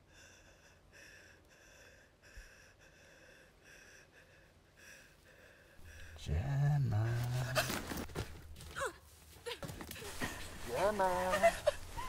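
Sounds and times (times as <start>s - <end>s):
woman panting: 0.0s - 6.1s.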